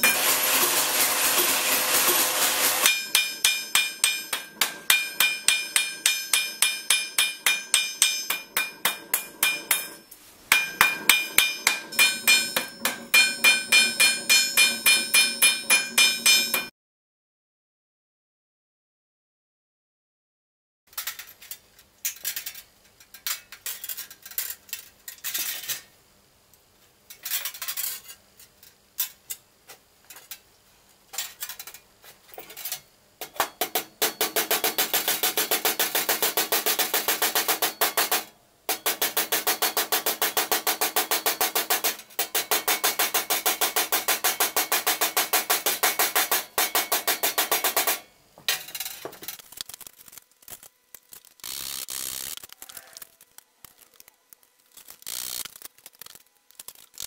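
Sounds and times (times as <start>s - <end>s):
hammer striking sheet steel: 0.0s - 16.7s, 33.2s - 49.2s.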